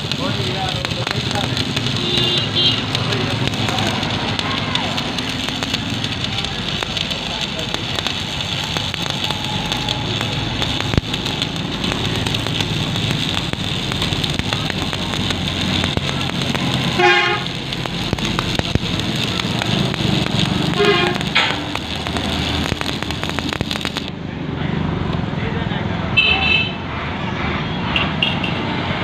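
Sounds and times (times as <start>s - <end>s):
welding arc crackling: 0.0s - 24.2s
traffic: 0.0s - 29.0s
vehicle horn toots: 2.0s - 2.9s, 16.9s - 17.4s, 20.8s - 21.3s.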